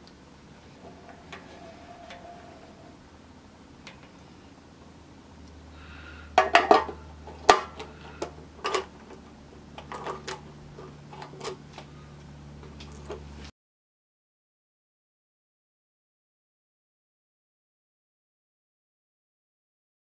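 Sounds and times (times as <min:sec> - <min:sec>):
low hum: 0:00.0 - 0:13.5.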